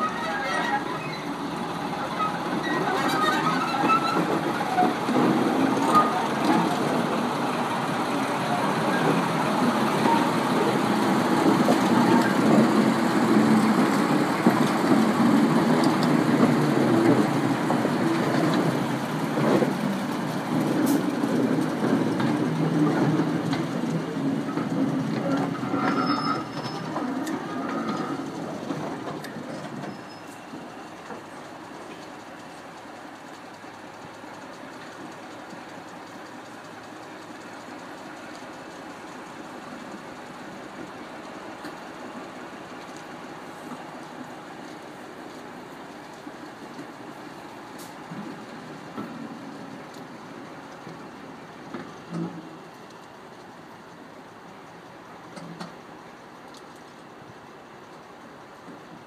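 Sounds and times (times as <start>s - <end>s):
wheel squeals: 0.0s - 7.0s, 8.4s - 18.7s, 24.2s - 32.0s
wagon wheels clattering on rails: 0.0s - 54.1s
diesel engine working: 0.0s - 59.0s.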